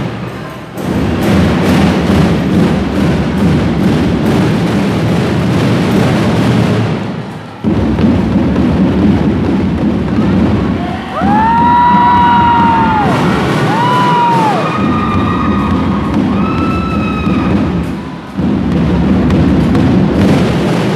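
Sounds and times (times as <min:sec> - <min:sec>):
drum and lyre band playing: 0:00.0 - 0:20.9.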